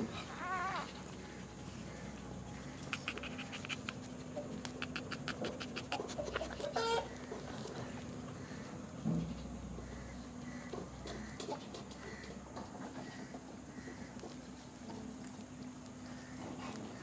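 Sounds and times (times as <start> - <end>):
puppy whining: 0.0 - 8.1
puppies squeaking and whimpering: 0.0 - 8.6.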